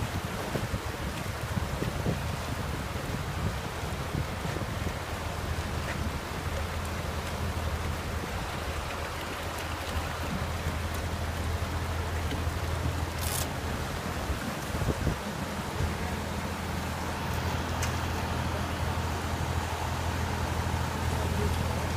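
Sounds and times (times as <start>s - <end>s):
river water rushing: 0.0s - 21.9s
machine engine humming: 15.5s - 21.9s.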